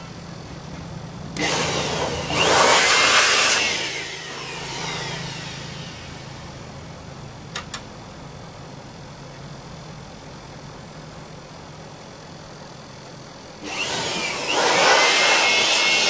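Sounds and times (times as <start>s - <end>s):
electric air blower: 0.0s - 6.9s, 13.6s - 16.0s
sharp clicks: 7.5s - 7.9s.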